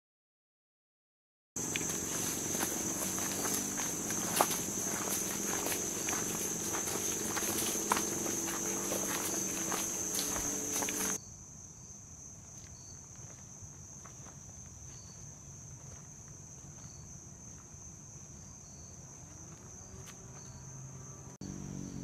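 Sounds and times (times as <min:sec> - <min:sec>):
footsteps crunching on dirt: 0:01.6 - 0:11.2, 0:12.6 - 0:17.0
insects droning: 0:01.6 - 0:22.0.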